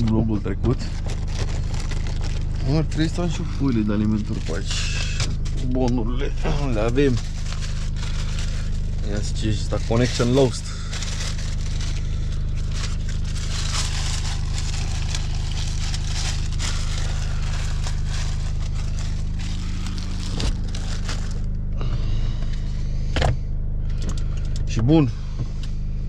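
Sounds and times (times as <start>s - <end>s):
paper rustling and crinkling: 0.0s - 5.7s, 6.6s - 21.5s
diesel engine idling: 0.0s - 26.0s.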